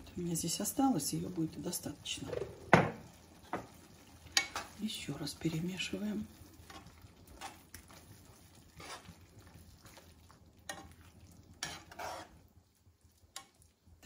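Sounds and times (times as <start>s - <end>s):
spoon stirring thick sauce: 3.4s - 13.8s
spoon scraping and clinking on pan: 8.8s - 9.1s, 10.7s - 11.0s, 11.6s - 12.4s.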